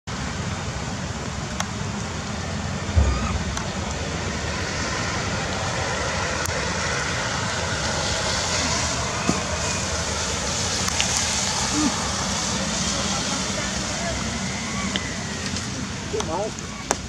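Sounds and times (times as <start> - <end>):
rain falling: 0.3 - 17.0
low rumble: 2.4 - 15.4
low thump: 2.9 - 4.5.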